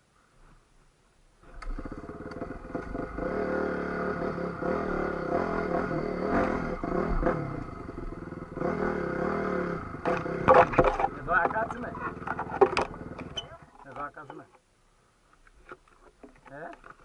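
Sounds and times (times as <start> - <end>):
dirt bike engine revving: 1.6 - 13.5
bike knocking over rough ground: 10.0 - 14.5.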